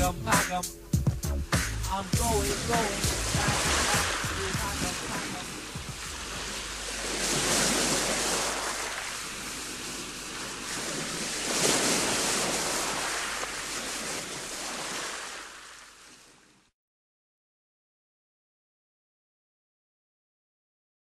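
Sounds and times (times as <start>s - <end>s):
sea waves washing onto shore: 1.9s - 16.7s.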